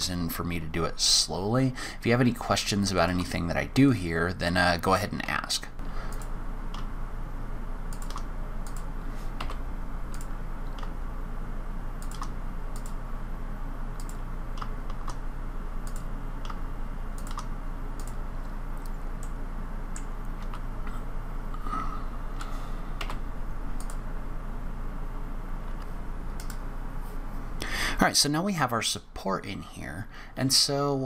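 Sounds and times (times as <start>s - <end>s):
steady low hum: 0.0s - 31.0s
keyboard and mouse clicks: 6.1s - 6.9s, 7.9s - 11.0s, 12.0s - 13.0s, 14.0s - 15.2s, 15.8s - 16.6s, 17.2s - 18.2s, 18.8s - 20.7s, 22.4s - 23.2s, 23.8s - 24.0s, 25.8s - 26.6s
keyboard keystroke clicks: 7.9s - 11.0s, 12.0s - 13.0s, 17.2s - 18.2s, 26.4s - 26.6s.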